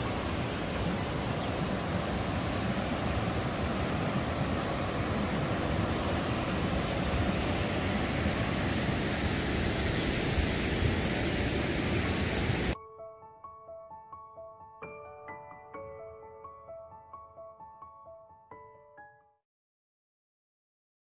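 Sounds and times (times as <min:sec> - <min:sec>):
waterfall rushing: 0:00.0 - 0:12.8.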